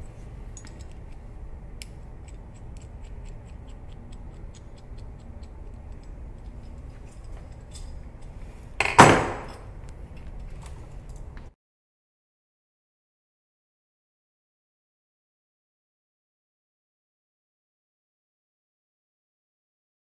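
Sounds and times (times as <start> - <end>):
metal tools clicking: 0.0 - 1.2, 1.8 - 9.7
metal tools clattering: 6.5 - 9.7.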